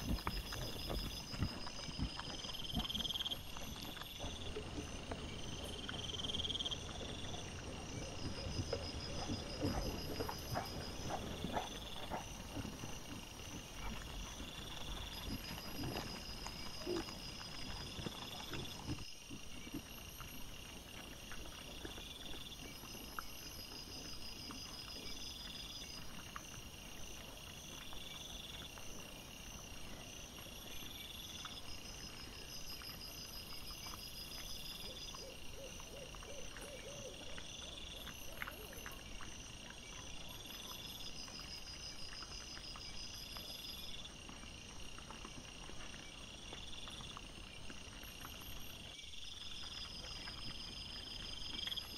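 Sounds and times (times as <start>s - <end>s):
animals foraging rustles: 0.0s - 51.9s
insects chirping: 0.0s - 51.9s.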